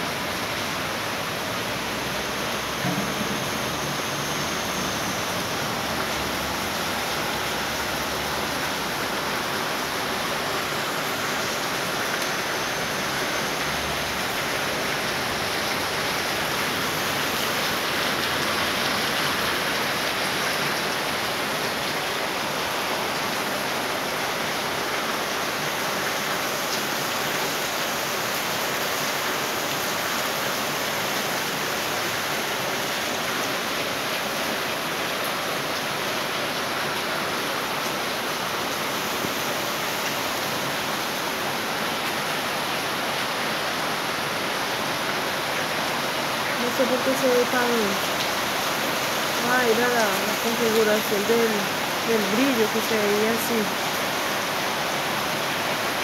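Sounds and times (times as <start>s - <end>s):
heavy rain falling: 0.0s - 56.0s.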